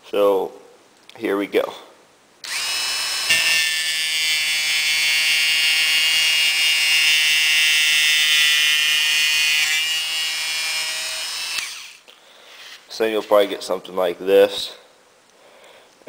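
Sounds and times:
rotary tool cutting whine: 2.4s - 12.0s.

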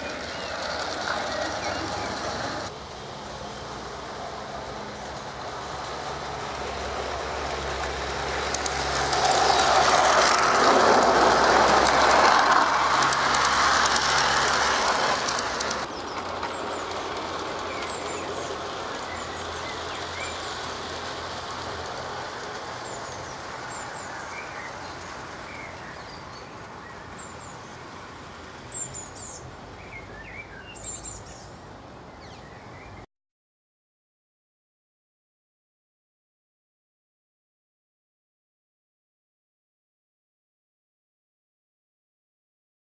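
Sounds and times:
birds chirping: 0.0s - 2.7s
model train wheels rumbling on rails: 0.0s - 30.1s.

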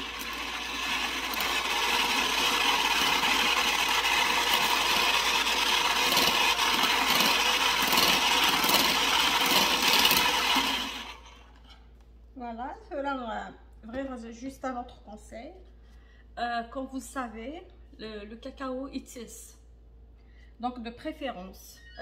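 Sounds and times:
electric hand mixer whisking batter: 0.0s - 11.5s.

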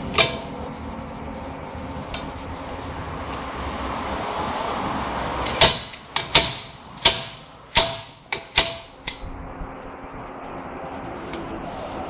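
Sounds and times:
slide hammer metal clanks: 5.5s - 9.3s.

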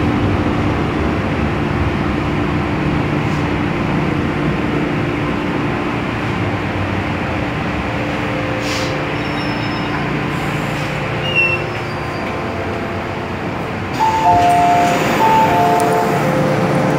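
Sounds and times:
two-tone door chime: 14.0s - 16.9s.

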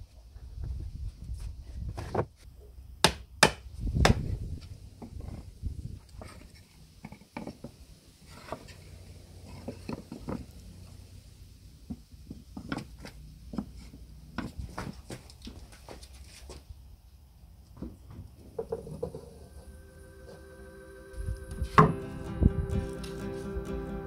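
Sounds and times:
boards scraping: 6.1s - 10.9s.

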